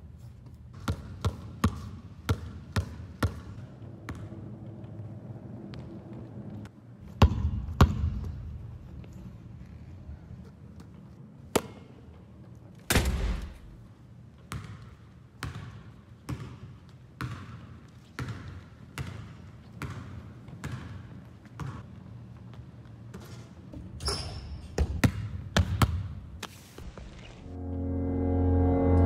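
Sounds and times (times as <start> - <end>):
basketball bouncing on hardwood floor: 7.2 - 8.4, 15.4 - 17.6, 18.2 - 21.8.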